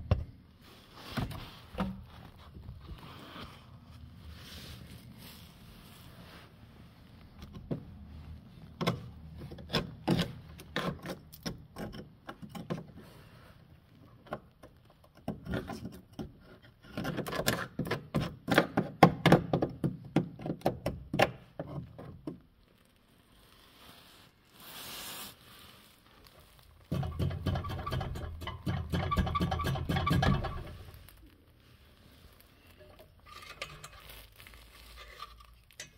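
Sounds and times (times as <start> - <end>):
rustle of scraping and handling: 0.3 - 11.4, 12.0 - 17.7, 21.6 - 35.9
screwdriver scraping rusted metal: 26.9 - 30.8, 33.2 - 34.0.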